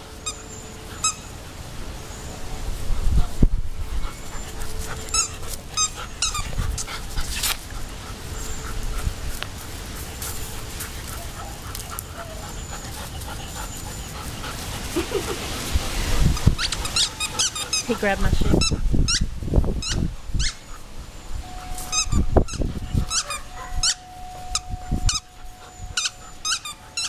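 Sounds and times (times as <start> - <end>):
rustling: 2.6 - 18.0
dog panting: 2.8 - 19.0, 21.5 - 27.0.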